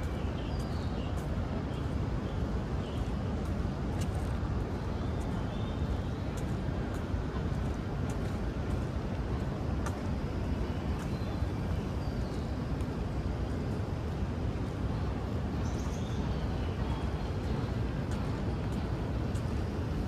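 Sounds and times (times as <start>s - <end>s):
distant city traffic rumble: 0.0s - 20.0s.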